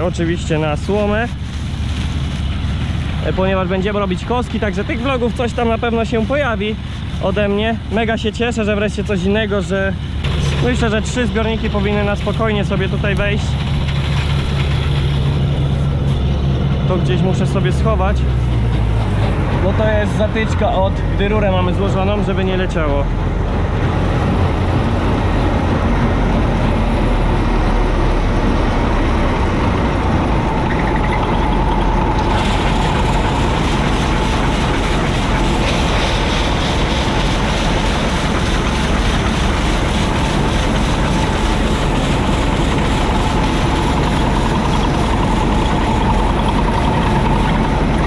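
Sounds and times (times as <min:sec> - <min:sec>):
combine harvester droning: 0:00.0 - 0:48.0
steady whine: 0:00.0 - 0:48.0.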